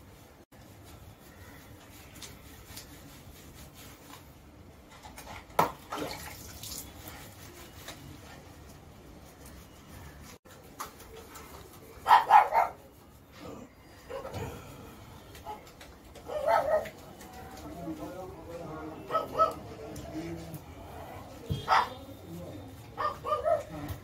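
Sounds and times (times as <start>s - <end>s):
dog barking: 12.0s - 12.8s, 16.3s - 16.9s, 19.1s - 19.6s, 21.6s - 22.1s, 23.0s - 23.9s.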